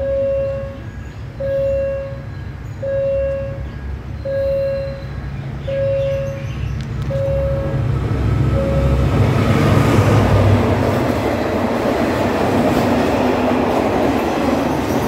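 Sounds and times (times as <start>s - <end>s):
level-crossing alarm beeps: 0.0s - 7.9s, 8.6s - 9.1s
diesel train rumble: 0.0s - 15.0s.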